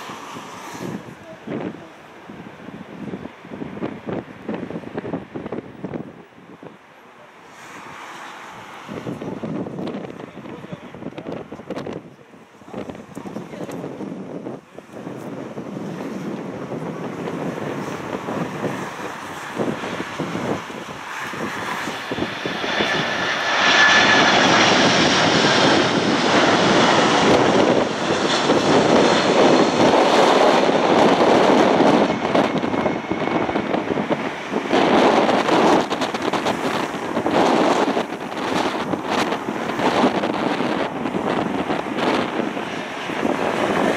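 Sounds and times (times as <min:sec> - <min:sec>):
wind buffeting microphone: 0:00.0 - 0:06.9, 0:07.6 - 0:43.9
jet engine roar: 0:00.0 - 0:43.9
high fan whine: 0:08.8 - 0:43.9.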